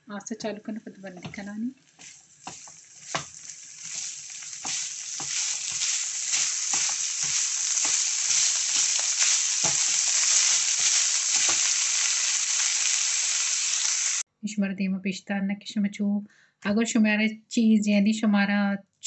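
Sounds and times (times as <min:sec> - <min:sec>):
spatula scraping and knocking pan: 0:01.2 - 0:12.1
meat sizzling in a pan: 0:01.2 - 0:14.2.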